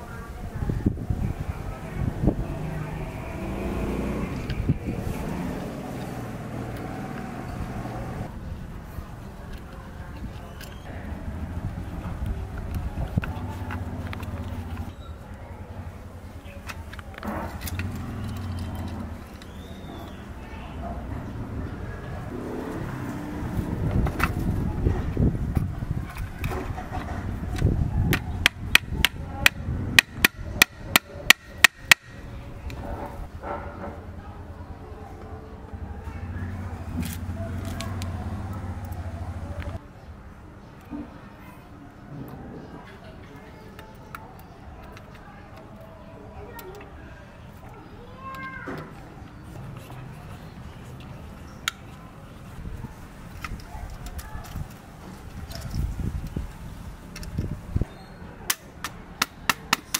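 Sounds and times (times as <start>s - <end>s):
motor engine humming: 1.8s - 8.4s.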